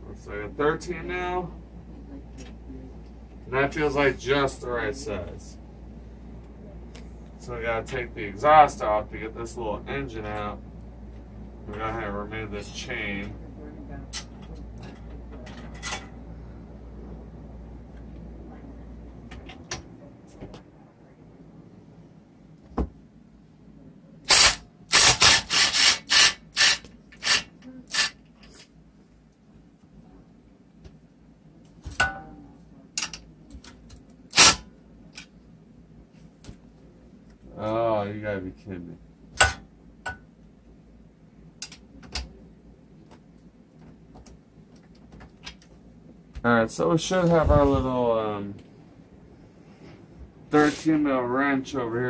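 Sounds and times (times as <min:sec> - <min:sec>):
cordless driver bursts: 0:24.3 - 0:28.1.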